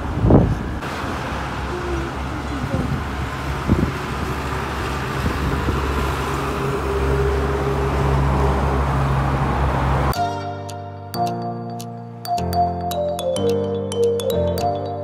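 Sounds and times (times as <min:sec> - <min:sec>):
road noise: 0:00.0 - 0:15.0
vehicle engine humming: 0:00.0 - 0:15.0
music with bell-like tones: 0:10.1 - 0:15.0.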